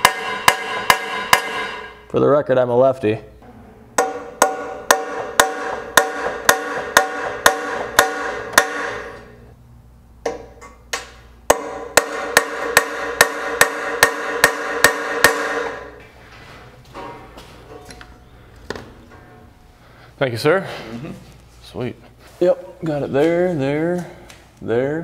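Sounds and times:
hammer striking steel punch: 0.0 - 2.1, 4.0 - 9.4, 10.3 - 16.0.

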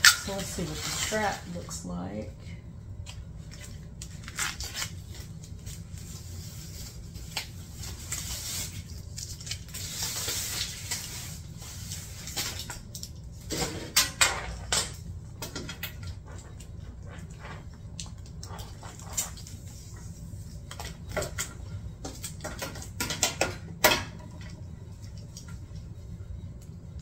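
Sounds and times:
plastic wrapping rustling: 0.0 - 2.0, 3.0 - 13.6.

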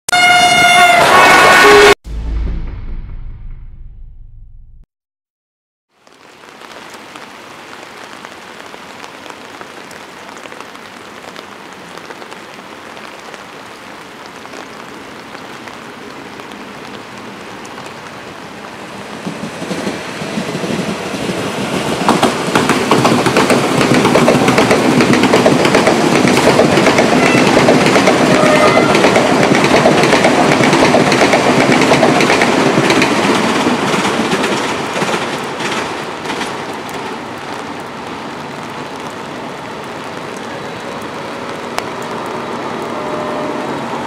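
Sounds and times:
steady rain hiss: 5.9 - 27.2, 32.4 - 44.0
electric train passing: 18.7 - 44.0
train wheels clattering over rails: 19.1 - 36.7.

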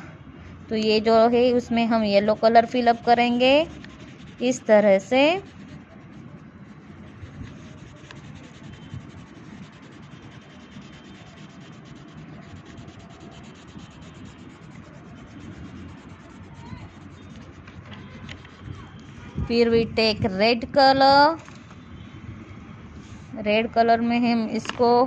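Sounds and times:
crayon rubbing on paper: 1.9 - 19.5.

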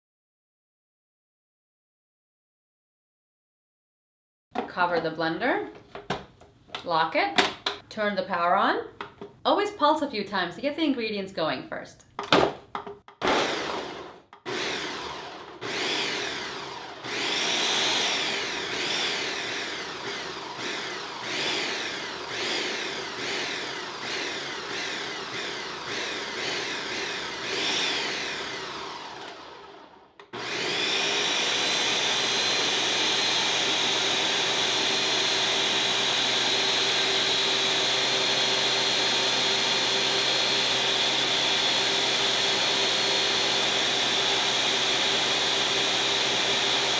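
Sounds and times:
blender motor pulsing: 13.2 - 46.9.

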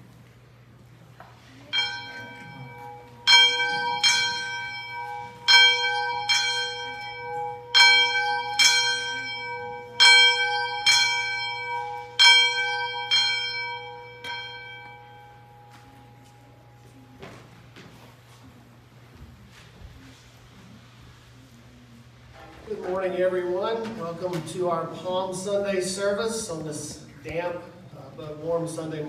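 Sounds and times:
church bell ringing: 1.7 - 17.0.

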